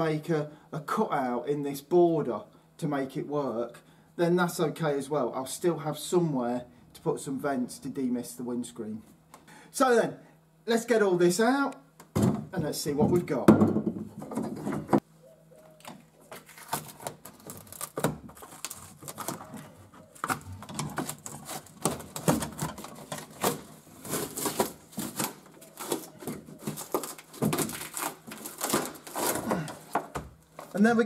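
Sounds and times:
tape peeling crackles and clicks: 0:15.8 - 0:29.5.

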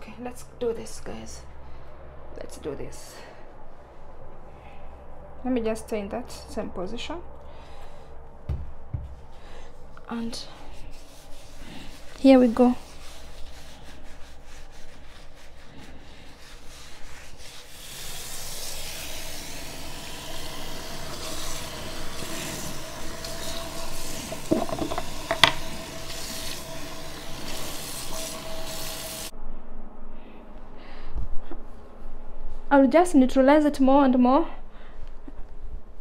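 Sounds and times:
hands scrubbing wet hair: 0:09.8 - 0:29.3
tap running into sink: 0:23.1 - 0:26.6.

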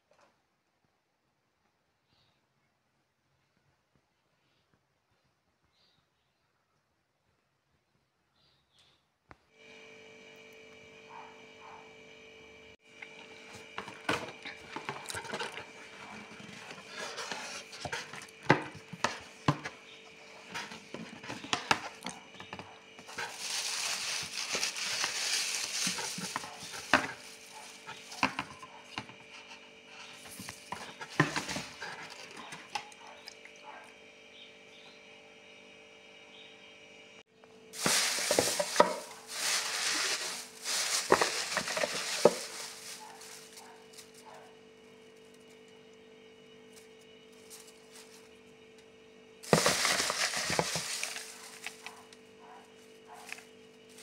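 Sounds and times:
shredded paper rustling: 0:13.1 - 0:32.8, 0:37.8 - 0:45.6, 0:46.7 - 0:48.5, 0:49.4 - 0:54.0
cardboard packaging handled: 0:13.4 - 0:29.4, 0:30.0 - 0:32.6, 0:37.8 - 0:44.2, 0:49.4 - 0:52.1.

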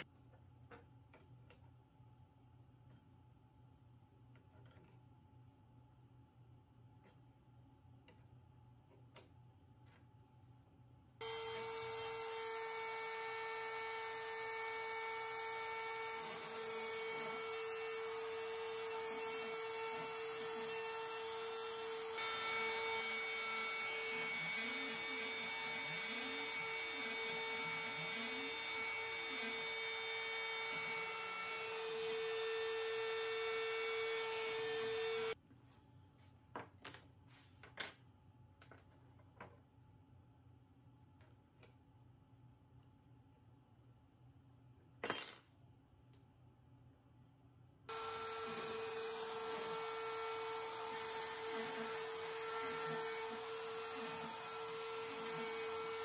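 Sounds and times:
router spindle whining: 0:11.2 - 0:35.4, 0:47.9 - 0:56.0.

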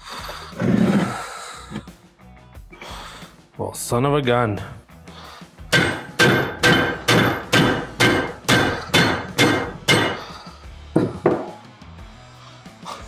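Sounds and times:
hammer striking metal punch: 0:05.7 - 0:10.3.

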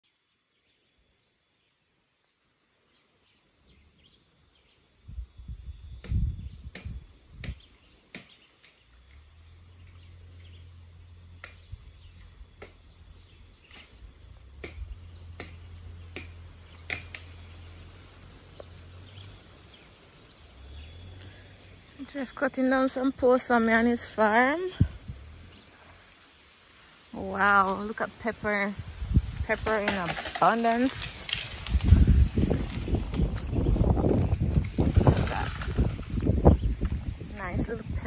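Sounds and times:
wind rumbling on microphone: 0:04.9 - 0:08.0, 0:11.6 - 0:15.3, 0:16.6 - 0:26.1, 0:27.0 - 0:38.0.

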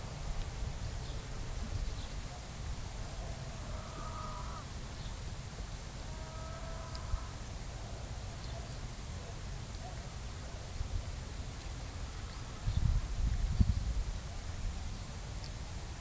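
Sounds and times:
wind rumble on microphone: 0:12.5 - 0:16.0.

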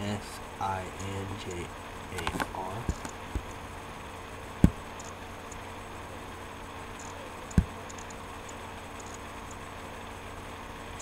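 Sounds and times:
low knocks: 0:04.6 - 0:04.8
faint small ticks: 0:05.0 - 0:05.6, 0:07.0 - 0:09.6.

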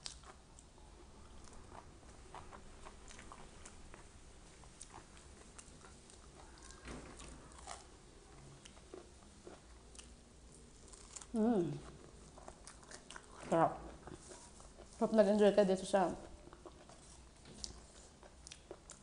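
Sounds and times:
chewing leafy vegetables: 0:00.0 - 0:19.0.

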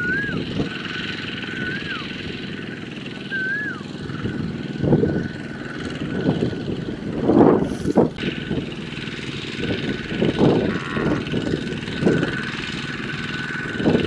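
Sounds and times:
bird whistling: 0:00.0 - 0:02.2, 0:03.1 - 0:04.3
diesel engine chugging: 0:00.0 - 0:14.0.

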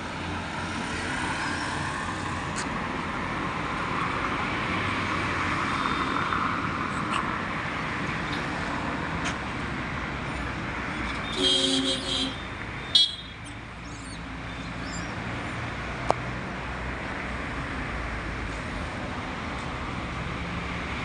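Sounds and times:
road traffic noise: 0:00.0 - 0:21.0
vehicle horn: 0:11.3 - 0:13.4.

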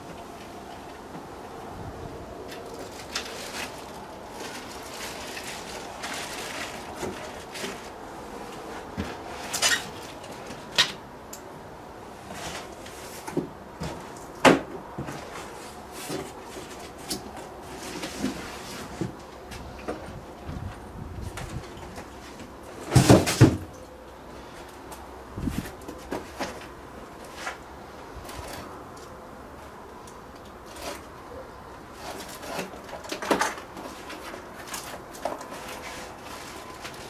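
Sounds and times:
cardboard and foam rustling: 0:00.0 - 0:11.0, 0:12.0 - 0:29.8, 0:30.6 - 0:37.0
knocks and scrapes: 0:12.2 - 0:23.6.

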